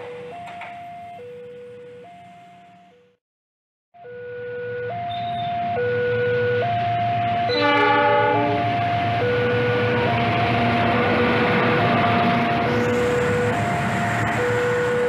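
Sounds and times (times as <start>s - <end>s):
level crossing alarm two tones: 4.0s - 15.0s
train passing close by: 5.3s - 15.0s
locomotive horn blast: 7.5s - 8.8s.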